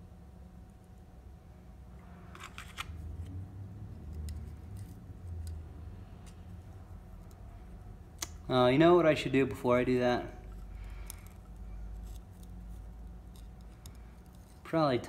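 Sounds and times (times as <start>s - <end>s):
low steady hum: 0.0s - 15.0s
small parts clicking and scraping: 2.1s - 8.4s, 10.4s - 14.7s.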